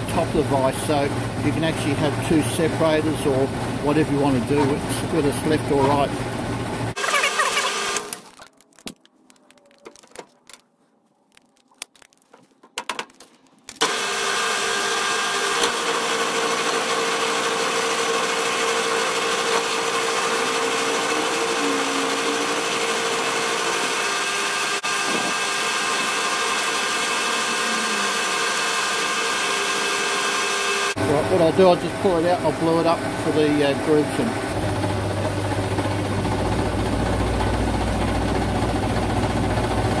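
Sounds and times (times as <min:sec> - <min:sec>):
milling machine cutting metal: 0:13.8 - 0:39.2.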